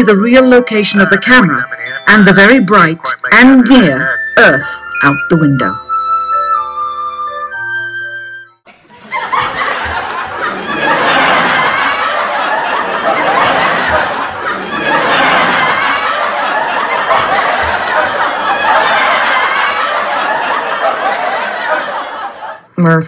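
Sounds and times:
crowd laughing loudly: 8.7s - 22.7s.

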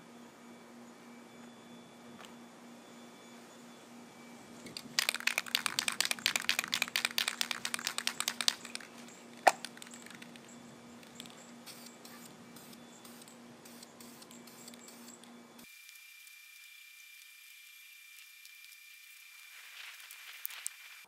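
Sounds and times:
spray can rattling: 4.8s - 15.0s
faint hisses of spray paint: 11.2s - 16.0s, 18.2s - 21.0s.

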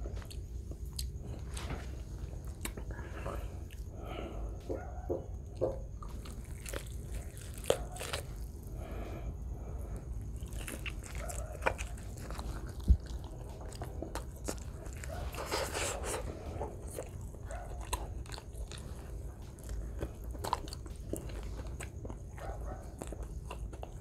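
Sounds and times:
man biting and chewing: 5.9s - 8.9s, 9.9s - 24.0s.

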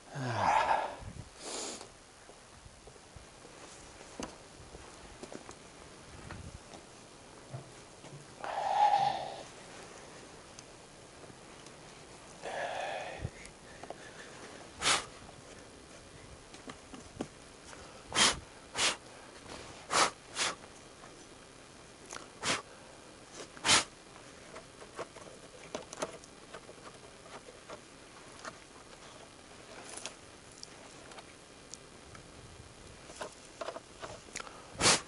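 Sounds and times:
person sniffling: 8.4s - 9.5s, 12.4s - 13.4s, 14.0s - 15.1s, 18.1s - 19.0s, 19.9s - 20.6s, 22.4s - 22.7s, 34.8s - 35.0s.

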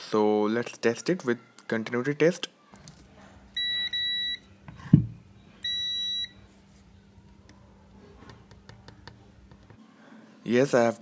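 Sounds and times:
multimeter continuity beeps: 3.5s - 4.6s, 5.3s - 6.5s
knock: 4.9s - 5.2s.

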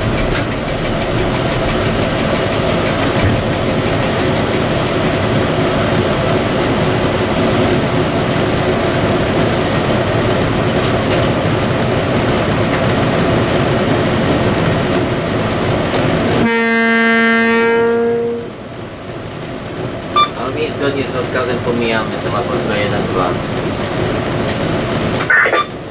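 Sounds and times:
diesel locomotive engine drone: 0.0s - 25.9s
locomotive horn blast: 16.4s - 18.5s.

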